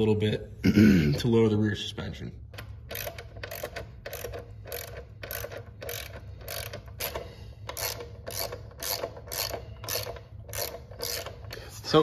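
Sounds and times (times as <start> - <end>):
ratchet wrench clicking: 2.6 - 12.0.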